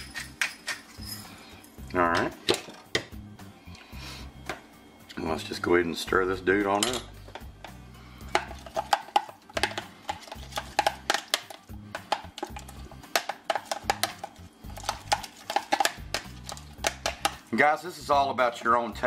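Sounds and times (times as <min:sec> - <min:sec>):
metal utensil stirring sauce: 0:08.2 - 0:17.5.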